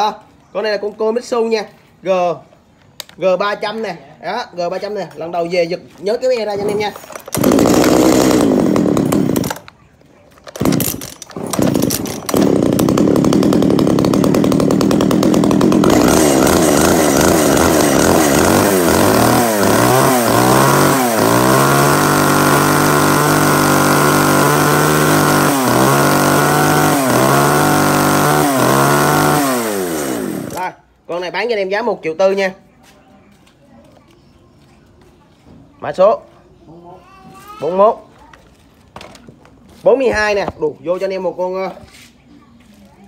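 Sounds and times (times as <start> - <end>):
small two-stroke engine revving: 7.3 - 9.7, 10.6 - 30.8.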